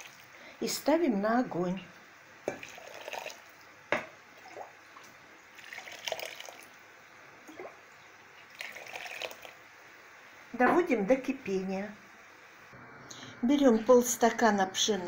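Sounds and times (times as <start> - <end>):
water pouring and splashing: 0.0 - 0.3, 2.5 - 3.6, 4.4 - 6.8, 7.5 - 7.8, 8.4 - 9.6.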